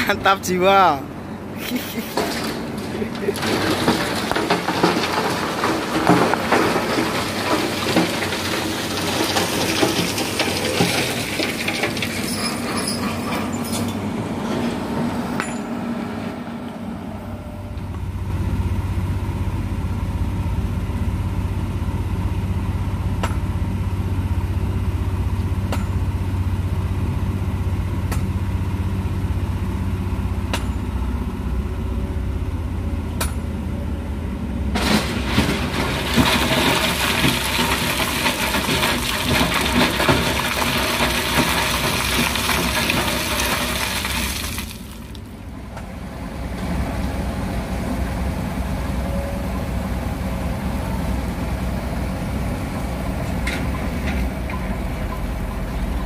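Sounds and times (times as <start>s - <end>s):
gravel scraping: 1.6s - 14.8s, 34.8s - 45.3s.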